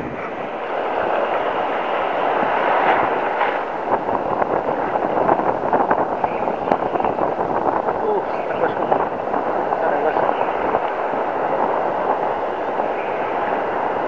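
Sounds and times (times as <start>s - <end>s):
surf breaking on beach: 0.0s - 14.0s
wind on microphone: 0.0s - 14.0s.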